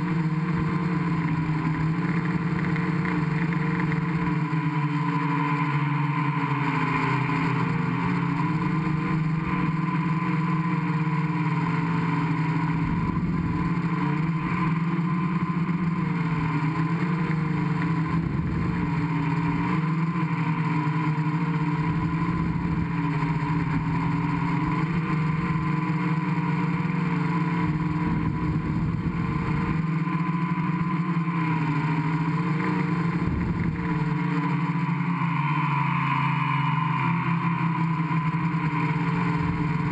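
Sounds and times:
drone motors and propellers: 0:00.0 - 0:39.9
wind rumbling on microphone: 0:33.2 - 0:34.1.

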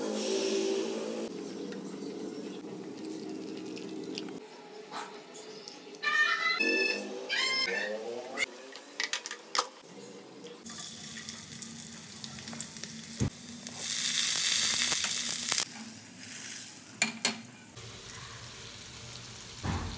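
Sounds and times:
onions sizzling in oil: 0:10.6 - 0:16.9, 0:17.8 - 0:19.7.

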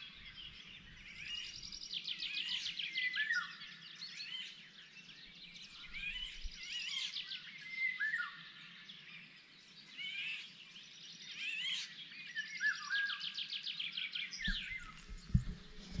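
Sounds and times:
songbirds singing rapid trills: 0:00.0 - 0:16.0
knock on microphone: 0:14.4 - 0:16.0.

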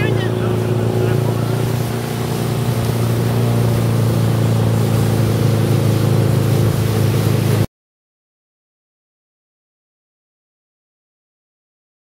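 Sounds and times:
motorboat engine running: 0:00.0 - 0:07.7
rush of wind and water: 0:00.0 - 0:07.7.

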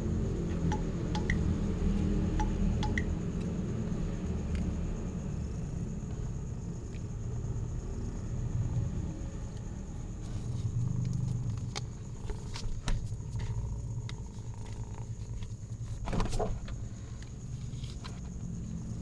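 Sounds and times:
low background rumble: 0:00.0 - 0:19.0.

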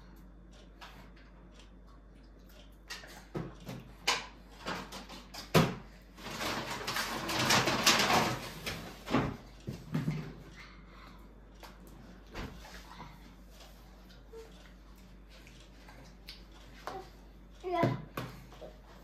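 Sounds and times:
knocks and clatter of handling: 0:03.3 - 0:10.4.

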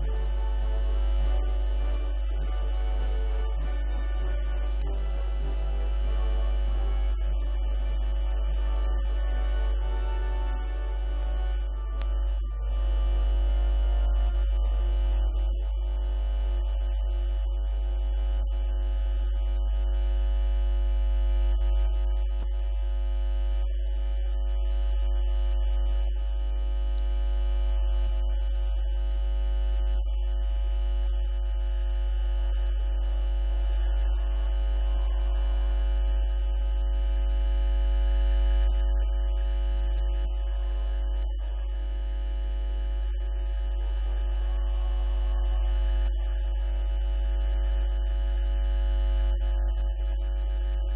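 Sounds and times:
buzz of high tones: 0:00.0 - 0:15.5, 0:32.2 - 0:46.4
low electrical hum: 0:00.0 - 0:50.9.

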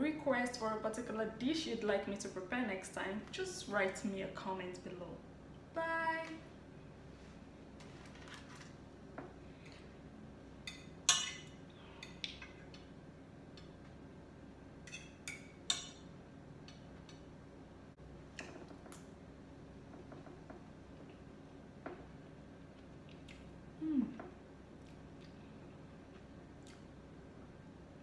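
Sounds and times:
faint steady hum: 0:00.0 - 0:28.0
cutlery clinking on a plate: 0:10.7 - 0:12.2.

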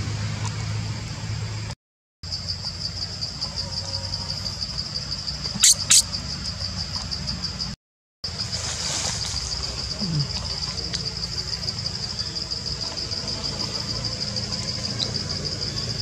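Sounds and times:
insects chirring: 0:02.2 - 0:16.0
sharp high-pitched chirps: 0:05.5 - 0:06.1.

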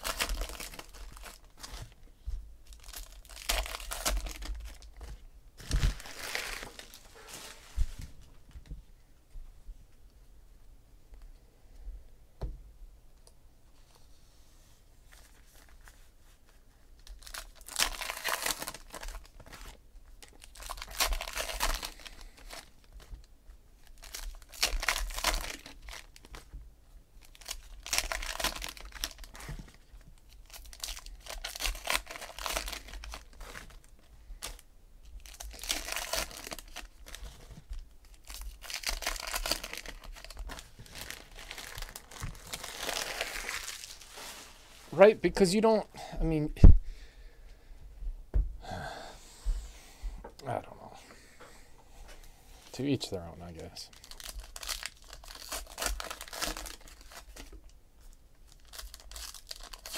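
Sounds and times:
foil wrappers tearing and crinkling: 0:00.0 - 0:02.0, 0:02.7 - 0:07.7, 0:17.0 - 0:23.1, 0:23.8 - 0:26.5, 0:27.2 - 0:44.5, 0:53.9 - 0:59.9.

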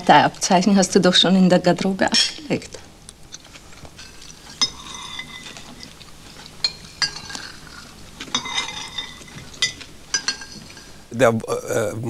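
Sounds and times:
cutlery clinking on plates: 0:04.0 - 0:11.0.

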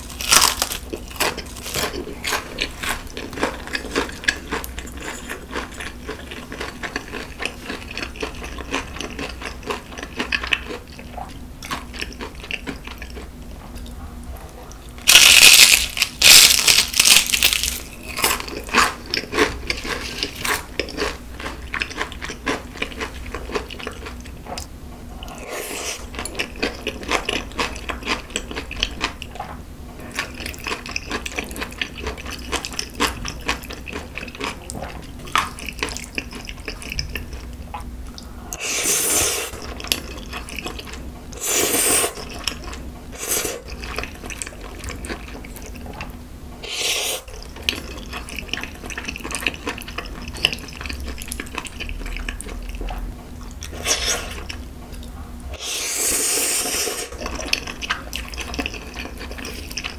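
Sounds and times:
crunchy chewing: 0:00.0 - 0:59.9
noodle slurps: 0:41.4 - 0:42.2, 0:46.6 - 0:47.3, 0:55.6 - 0:57.3.

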